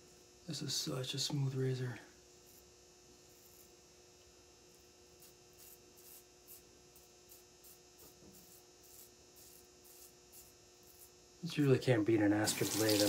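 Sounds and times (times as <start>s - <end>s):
razor scraping stubble: 5.1s - 13.0s.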